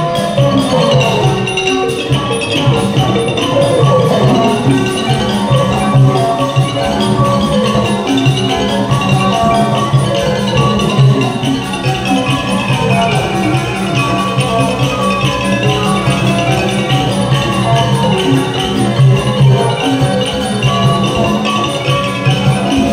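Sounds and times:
gong circles and mallet instruments: 0.0s - 22.9s.

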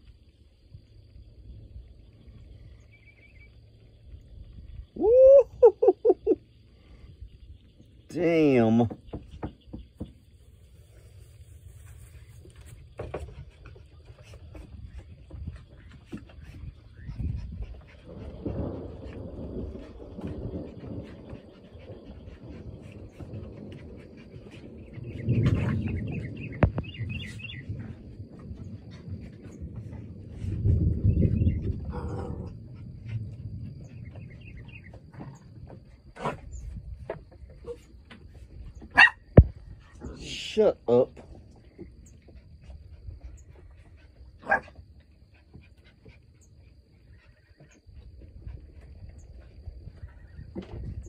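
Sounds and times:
wind rumble on microphone: 0.0s - 51.0s
birds chirping: 13.4s - 27.8s, 33.8s - 35.6s
dog barking: 39.0s - 39.2s, 44.4s - 44.6s.

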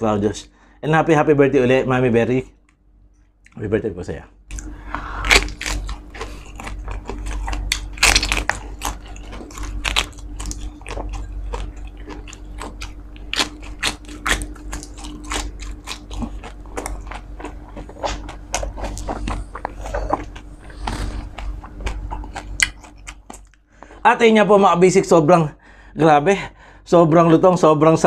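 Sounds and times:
faint steady hum: 0.0s - 28.0s
crunchy chewing: 4.5s - 24.0s.

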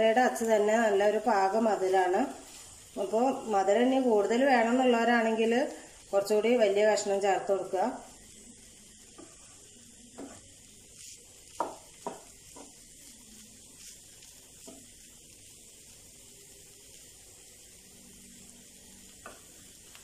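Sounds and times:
faint sizzle: 0.0s - 20.0s
wooden spatula scraping pan: 9.1s - 13.2s.

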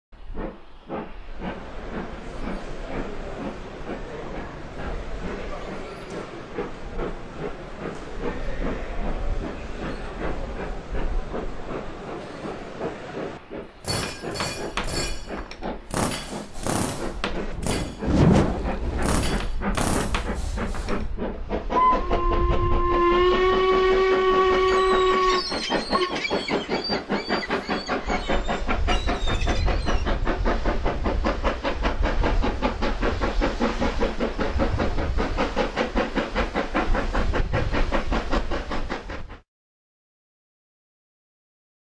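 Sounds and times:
toy train clicking and chuffing: 13.6s - 18.0s, 19.0s - 21.1s, 24.5s - 39.0s
toy train whistle: 21.8s - 26.6s.

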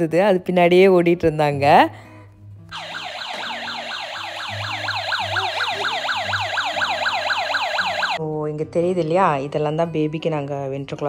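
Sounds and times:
toy electronic siren wailing: 2.8s - 8.2s
simple beeping tune: 3.5s - 8.2s.

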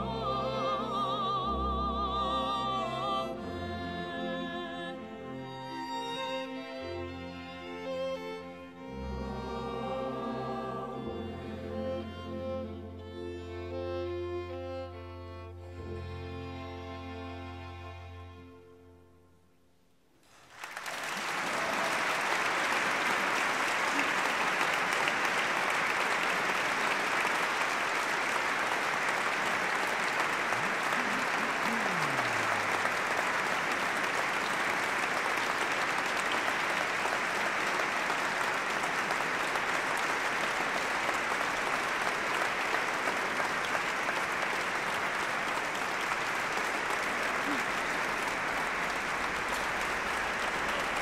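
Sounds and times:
audience applause: 20.2s - 51.0s.

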